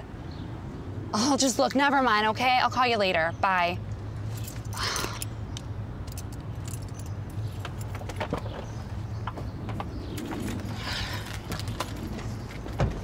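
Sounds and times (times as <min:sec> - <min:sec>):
keys jangling: 0:06.0 - 0:07.9.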